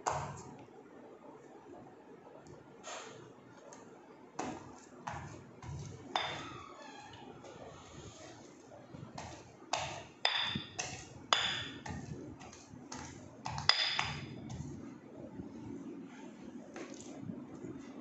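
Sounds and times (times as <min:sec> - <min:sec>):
pestle striking stone mortar: 0:09.2 - 0:14.7.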